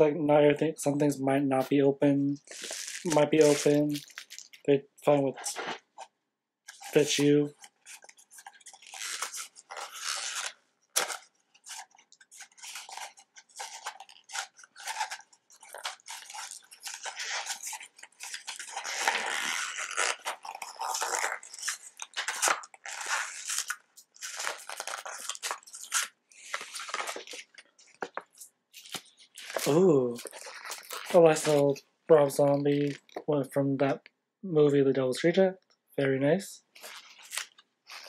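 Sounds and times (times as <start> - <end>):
paper wrapping crinkling and tearing: 2.4 - 4.6, 6.7 - 33.2, 36.8 - 38.0.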